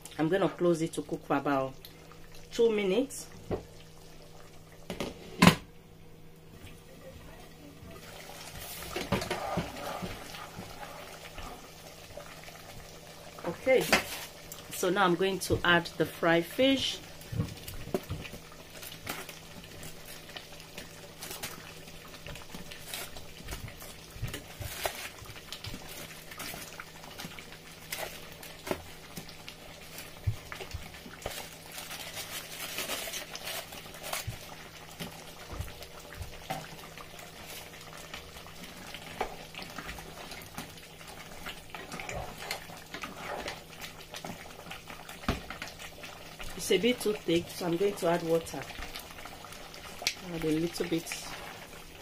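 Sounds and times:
stew bubbling and popping: 1.6s - 2.6s, 6.5s - 15.8s, 16.9s - 52.0s
spatula stirring: 8.0s - 12.2s, 37.3s - 45.7s, 50.2s - 52.0s.

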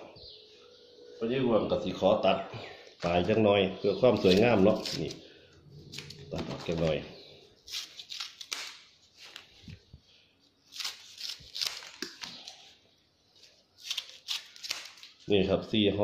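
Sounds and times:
scissors snipping: 4.2s - 5.2s, 7.7s - 8.8s.

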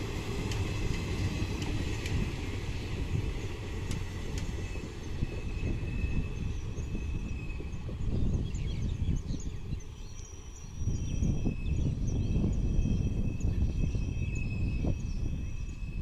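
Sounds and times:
train rumbling on track: 0.0s - 16.0s.

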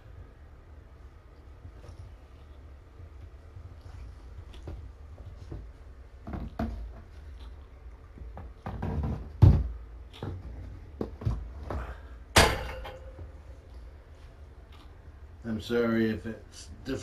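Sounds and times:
low steady hum: 0.0s - 17.0s
dull knocks and thumps: 4.6s - 7.3s, 8.1s - 13.4s.

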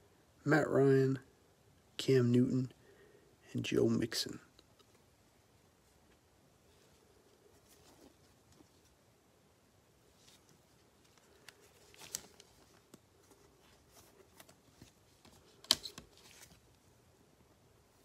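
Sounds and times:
trading cards sliding and rustling: 10.1s - 16.8s.

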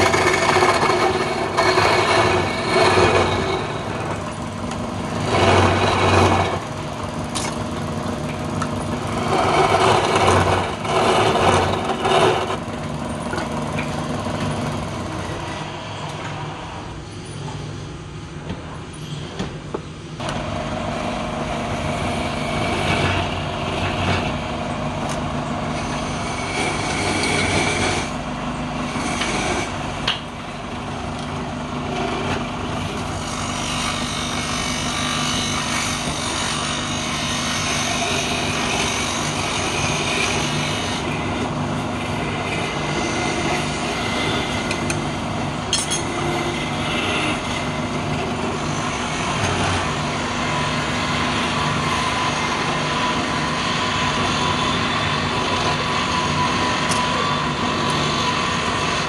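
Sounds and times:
scraper cutting spinning wood: 0.0s - 12.8s, 31.8s - 45.3s, 46.2s - 59.0s
lathe motor hum: 0.0s - 16.8s, 20.2s - 59.0s.

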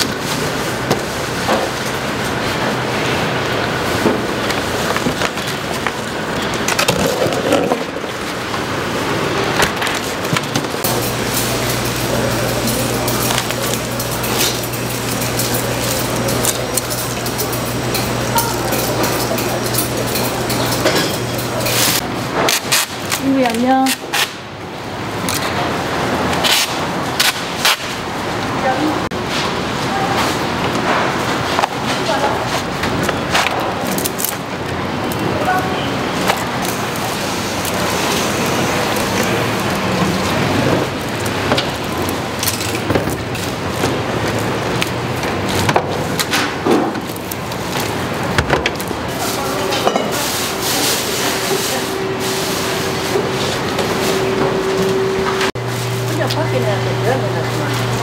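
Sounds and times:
steady hum: 0.0s - 23.1s, 35.9s - 58.0s.

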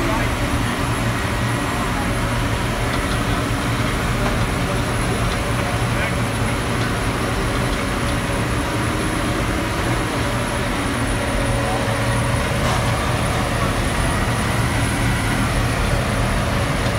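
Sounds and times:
conveyors running: 0.0s - 16.9s
harvester engine drone: 0.0s - 16.9s.

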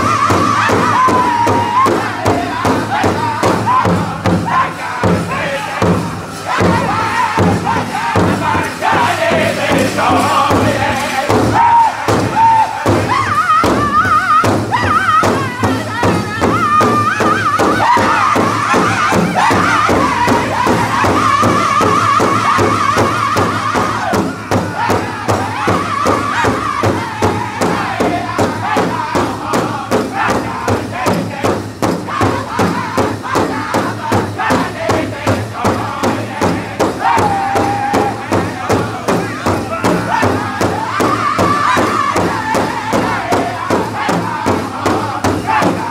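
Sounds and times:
high-pitched group singing: 0.0s - 45.9s
large drum beating: 0.0s - 45.9s.

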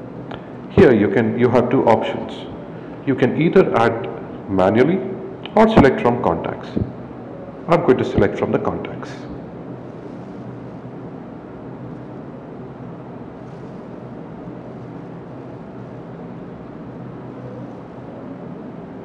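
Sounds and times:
background hum and hiss: 0.0s - 19.0s.

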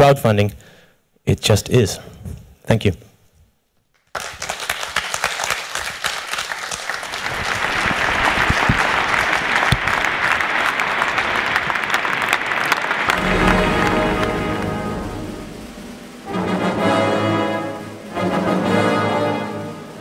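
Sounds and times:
audience applause: 4.0s - 19.8s
brass music: 10.6s - 20.0s.

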